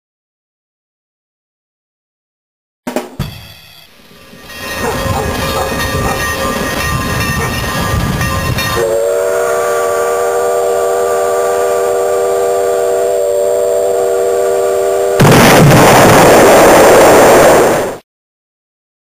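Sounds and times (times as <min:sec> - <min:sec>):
drum-backed music: 0:02.9 - 0:03.9
train whistle chord: 0:03.2 - 0:15.3
loud rush of noise: 0:15.0 - 0:18.0.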